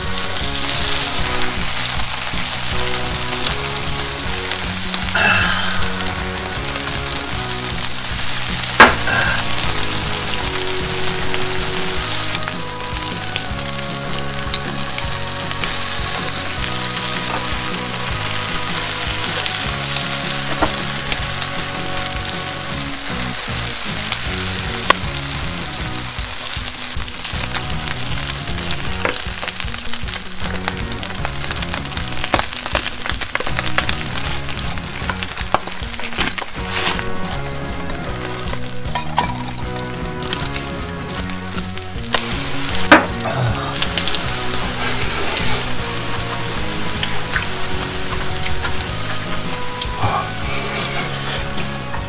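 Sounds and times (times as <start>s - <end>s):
fat and rice sizzling: 0.0s - 52.0s
spoon stirring and scraping: 43.8s - 52.0s.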